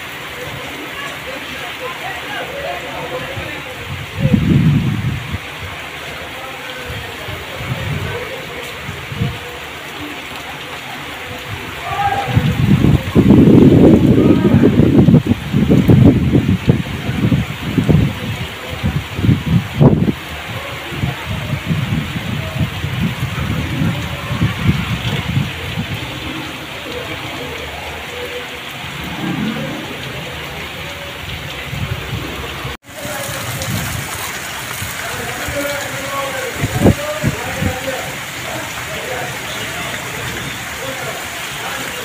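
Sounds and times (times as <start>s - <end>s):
torrential rain on road: 0.0s - 42.0s
wind gusts on microphone: 3.1s - 5.9s, 6.8s - 9.4s, 11.3s - 26.7s, 28.6s - 35.8s, 36.5s - 38.2s.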